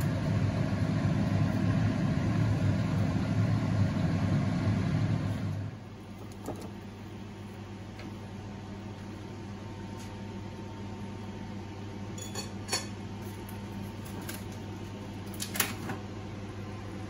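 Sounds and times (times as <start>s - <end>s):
low mechanical hum: 0.0s - 17.0s
dishware clinking on a plate: 12.2s - 13.0s.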